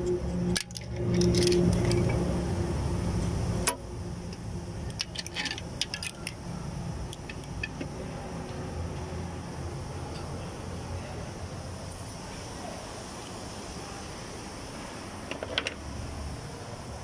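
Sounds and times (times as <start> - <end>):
metal tools and parts clinking: 0.0 - 2.4, 4.8 - 6.5, 7.1 - 7.9
steady hum: 0.0 - 17.0.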